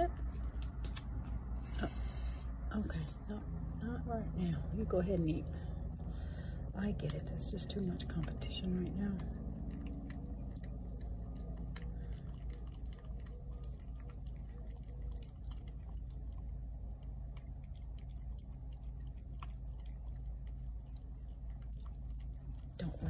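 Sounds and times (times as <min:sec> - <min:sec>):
steady low rumble: 0:00.0 - 0:23.0
cat chewing wet food: 0:04.7 - 0:23.0.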